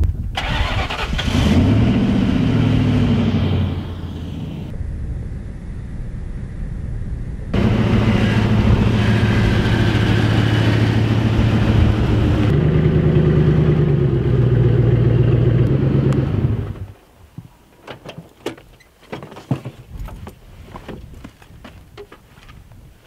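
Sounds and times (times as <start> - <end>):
pickup truck engine running: 7.6 - 16.8.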